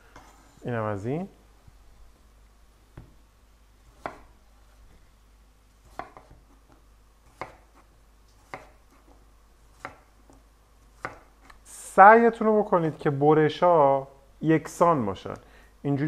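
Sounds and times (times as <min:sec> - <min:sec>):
knife chopping potato on wood: 0:03.9 - 0:04.4, 0:05.8 - 0:11.6.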